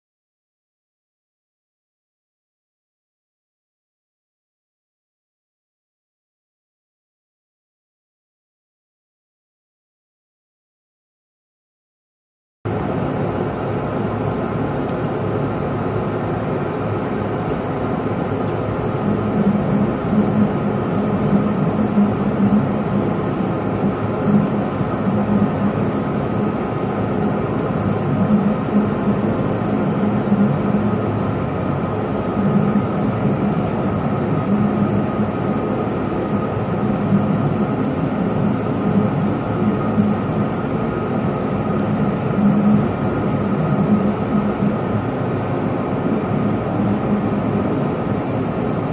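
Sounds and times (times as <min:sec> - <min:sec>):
laser cutter machine noise: 0:12.7 - 0:48.9
motor hum: 0:12.7 - 0:48.9.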